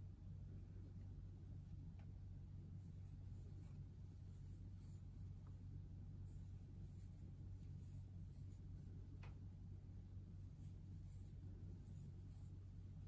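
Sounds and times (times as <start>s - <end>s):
steady low hum: 0.0s - 13.0s
crochet hook scratching yarn: 2.7s - 5.6s, 6.2s - 9.0s, 10.3s - 13.0s.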